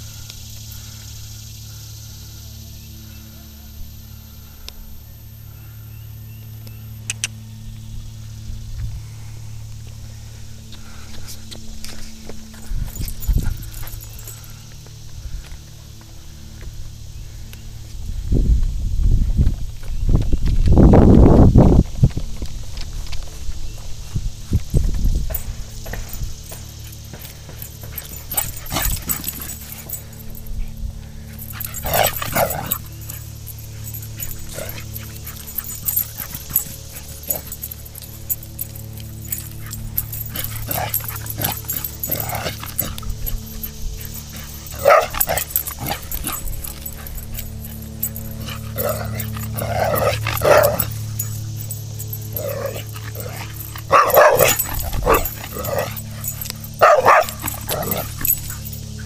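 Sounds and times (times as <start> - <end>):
dogs barking: 25.3 - 59.0.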